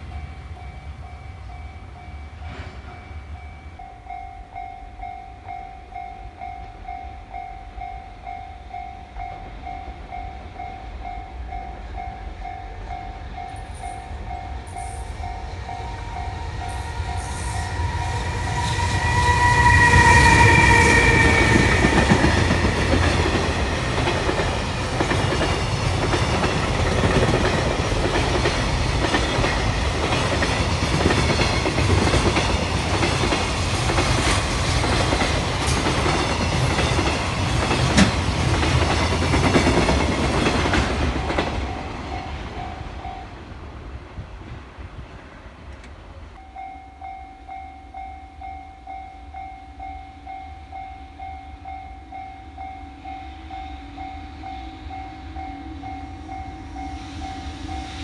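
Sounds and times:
level crossing warning bell: 0:00.0 - 0:34.0, 0:38.6 - 0:43.6, 0:46.3 - 0:58.0
freight train rolling past: 0:00.0 - 0:58.0
wheels clacking over rail joints: 0:21.0 - 0:42.6.

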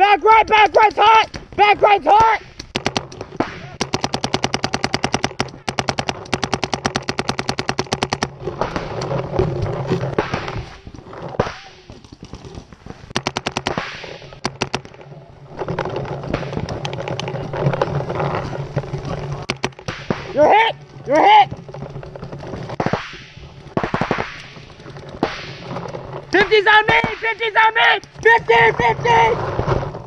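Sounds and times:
paintball marker rapid firing: 0:02.6 - 0:09.2, 0:12.9 - 0:15.0, 0:19.4 - 0:20.4, 0:21.5 - 0:28.2.

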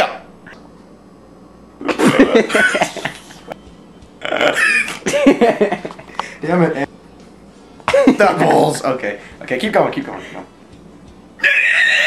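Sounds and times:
person making wordless vocal sounds: 0:04.2 - 0:04.7.

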